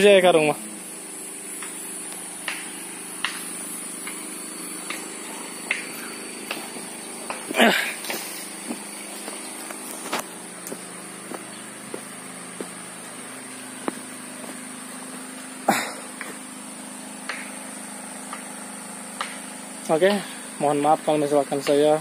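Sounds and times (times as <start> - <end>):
low machine hum: 0.0 - 22.0
footsteps on dirt path: 5.7 - 16.4.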